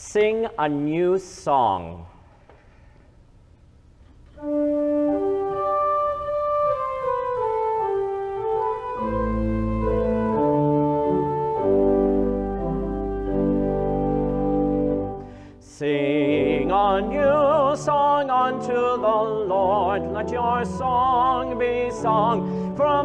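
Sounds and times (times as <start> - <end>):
organ playing: 4.4 - 23.0.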